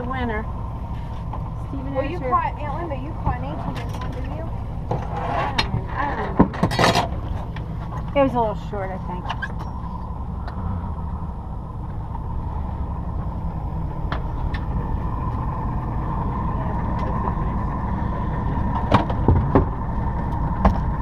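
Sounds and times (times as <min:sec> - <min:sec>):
boat engine low rumble: 0:00.0 - 0:21.0
faint steady whine: 0:00.0 - 0:21.0
knocks and clatters: 0:03.3 - 0:08.2, 0:18.7 - 0:19.8.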